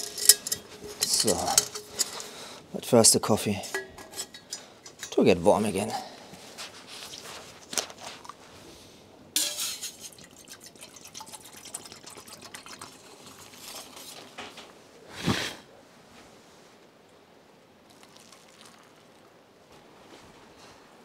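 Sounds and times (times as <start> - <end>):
metal cookware clinking: 0.0 - 2.3, 3.5 - 5.4, 9.4 - 10.0
liquid dripping: 10.1 - 13.6, 17.9 - 19.2.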